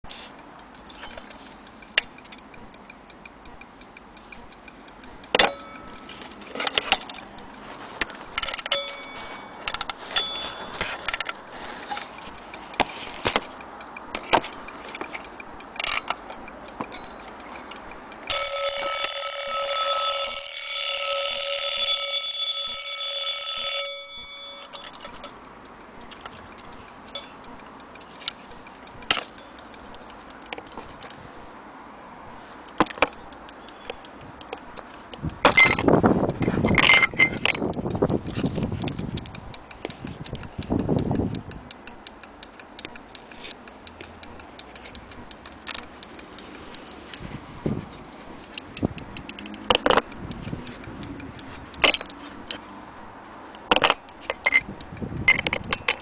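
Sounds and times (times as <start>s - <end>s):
clock being handled clicks: 0.2s - 31.6s, 32.3s - 56.0s
alarm bell ringing: 5.4s - 6.3s, 8.4s - 10.9s, 16.9s - 17.6s, 18.3s - 25.3s, 27.1s - 27.4s.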